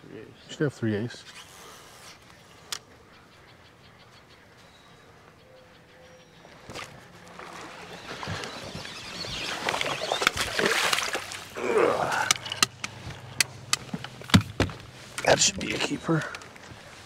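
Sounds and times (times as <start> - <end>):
fish splashing at surface: 7.3 - 11.6.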